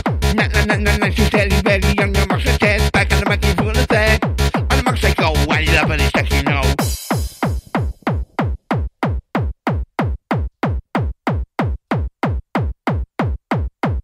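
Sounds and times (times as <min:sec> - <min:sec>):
hard-dance track: 0:00.0 - 0:13.9
drum-machine kick drum: 0:00.0 - 0:14.0.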